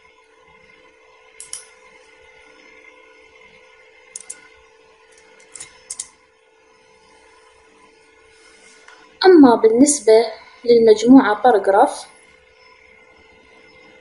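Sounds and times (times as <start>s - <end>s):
faint steady hum: 0.0s - 14.0s
computer clicks: 1.4s - 1.7s, 4.1s - 4.5s, 5.4s - 6.1s.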